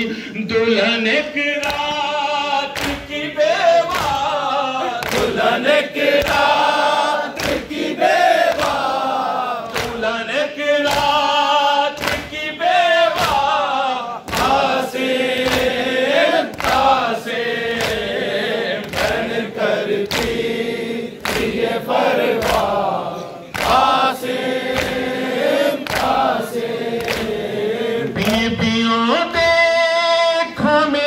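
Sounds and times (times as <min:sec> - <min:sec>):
man singing into microphone: 0:00.0 - 0:05.4, 0:09.9 - 0:14.3, 0:28.0 - 0:31.0
crowd singing along: 0:00.0 - 0:30.5.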